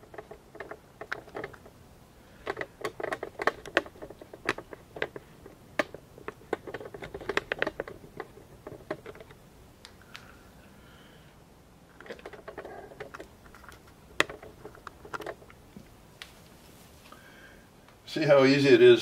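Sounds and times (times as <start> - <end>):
hands clicking small hard objects: 0.0 - 10.4.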